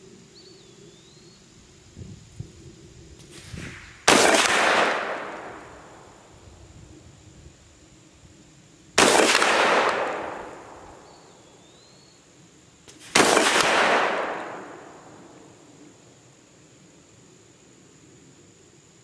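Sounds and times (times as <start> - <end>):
shotgun shots with echo: 3.4 - 5.7, 9.0 - 10.9, 13.0 - 15.0.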